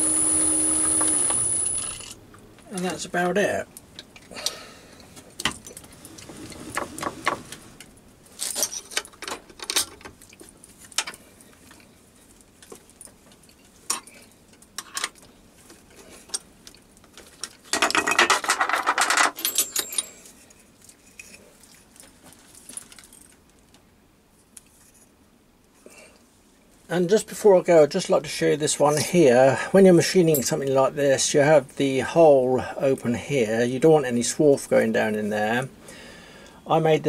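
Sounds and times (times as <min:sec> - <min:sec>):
metal clinks and rattles: 0:08.3 - 0:11.1, 0:17.4 - 0:20.4, 0:22.4 - 0:23.4.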